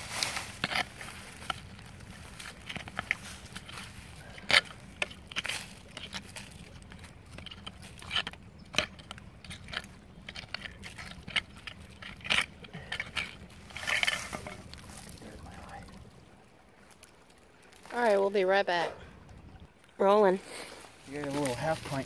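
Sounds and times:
digging tool scraping dirt: 0.0 - 15.0.

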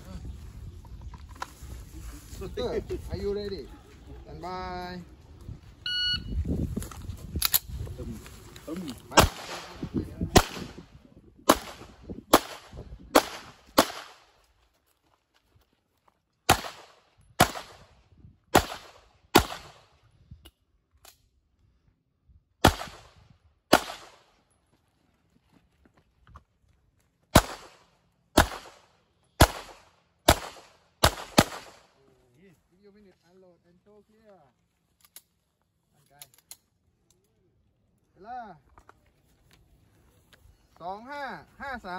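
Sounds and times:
pistol shots: 9.2 - 10.8, 11.5 - 14.3, 16.5 - 17.9, 18.5 - 19.8, 22.6 - 23.1, 23.7 - 24.2, 27.3 - 31.9.

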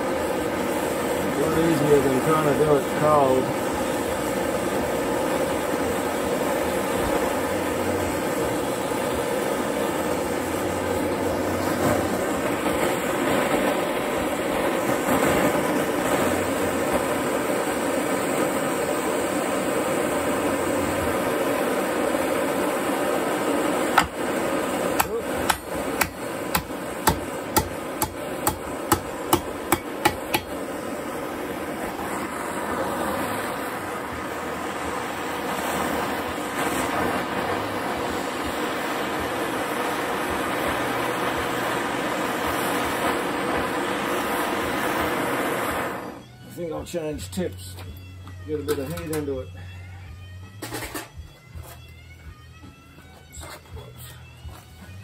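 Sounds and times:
propane torch hissing: 0.0 - 51.1
hammer striking metal: 24.0 - 24.2, 25.0 - 30.6.

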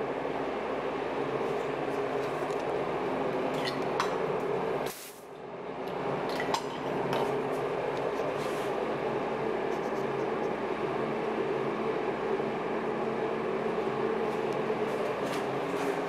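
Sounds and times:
steady hum and hiss: 0.0 - 16.0.

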